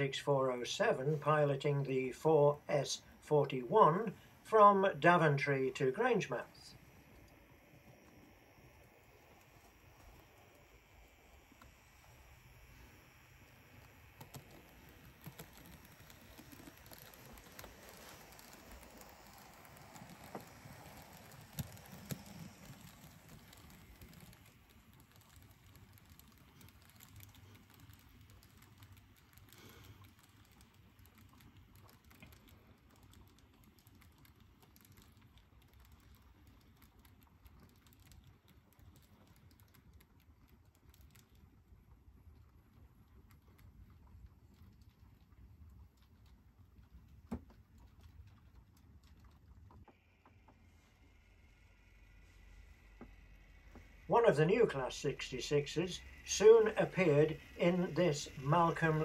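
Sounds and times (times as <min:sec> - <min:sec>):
model train clicking on track: 0:00.0 - 0:41.8, 0:52.4 - 0:59.0.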